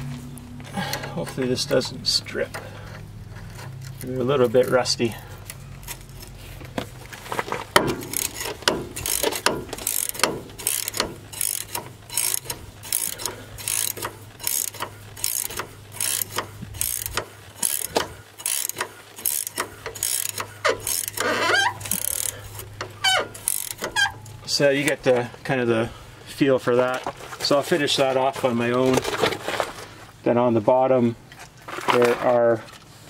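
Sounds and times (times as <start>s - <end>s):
hand wrench clicking: 7.8s - 24.4s
metal squeak: 8.0s - 24.5s.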